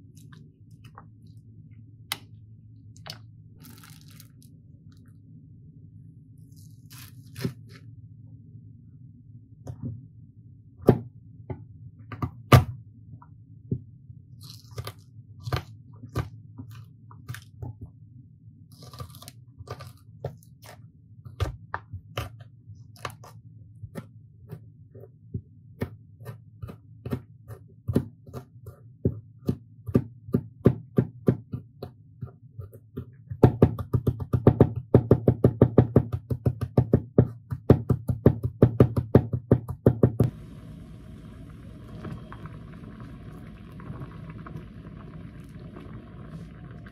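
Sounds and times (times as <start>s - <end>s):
low steady hum: 0.0s - 28.0s, 40.2s - 46.9s
knife chopping on plastic board: 19.7s - 40.4s.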